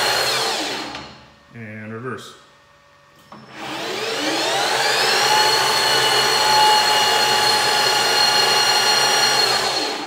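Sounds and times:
lathe spindle whining: 3.3s - 10.0s.

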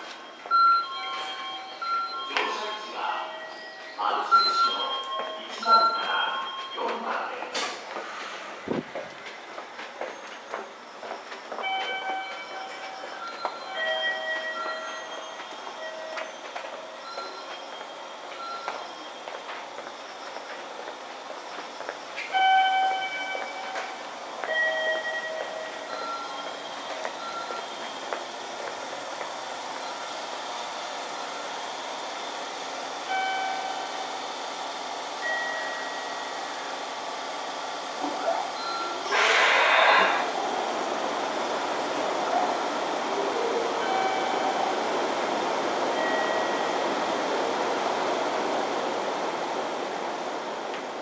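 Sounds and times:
electric train equipment humming: 0.0s - 51.0s
loud hiss of released air: 39.1s - 40.3s.

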